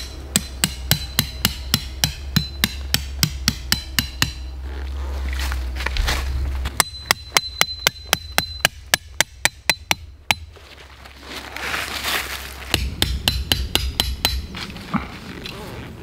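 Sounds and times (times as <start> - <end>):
hammer striking metal tent stake: 0.0 - 4.6, 6.7 - 10.6, 12.7 - 14.7.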